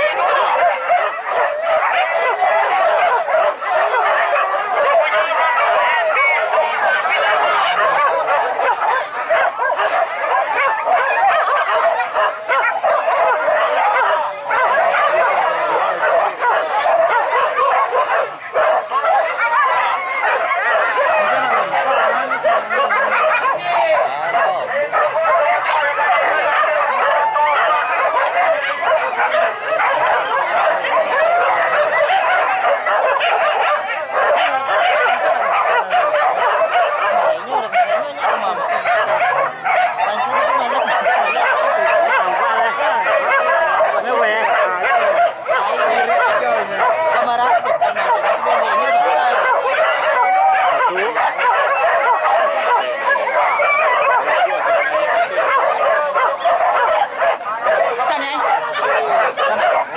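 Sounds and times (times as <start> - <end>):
dogs yelping and baying: 0.0 - 59.9.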